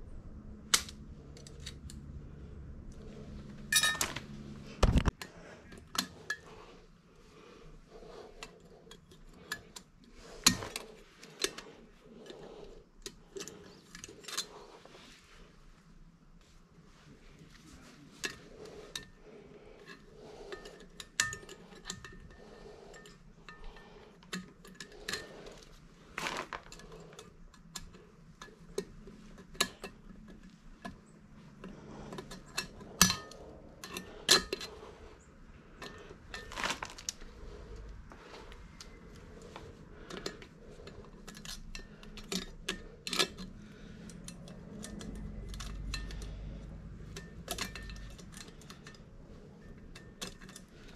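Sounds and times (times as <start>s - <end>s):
faint steady hum: 0.0s - 50.9s
metal tools clinking: 3.6s - 4.3s, 35.7s - 50.9s.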